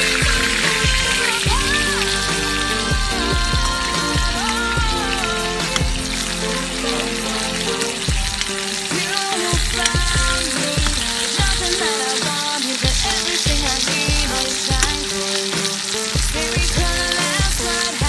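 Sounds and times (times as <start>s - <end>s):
background music with a beat: 0.0s - 18.0s
steak sizzling in a frying pan: 4.0s - 18.0s.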